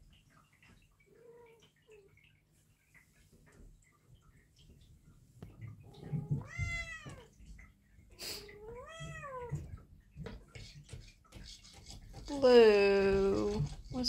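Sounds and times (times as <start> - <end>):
cat meowing: 6.0 - 7.3, 8.4 - 9.6.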